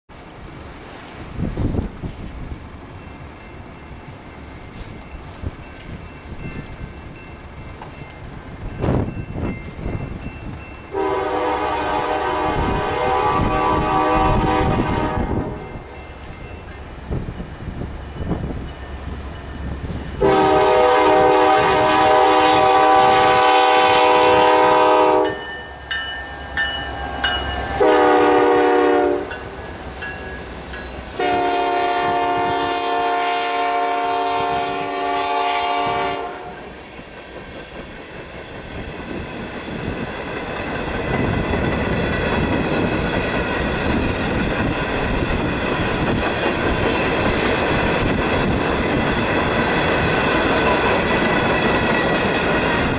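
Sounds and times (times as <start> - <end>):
rail clatter and wheel noise: 0.1 - 52.9
train cars rolling past: 0.1 - 52.9
train air horn blasts: 10.9 - 15.8, 20.2 - 25.5, 26.9 - 29.5, 31.2 - 36.8.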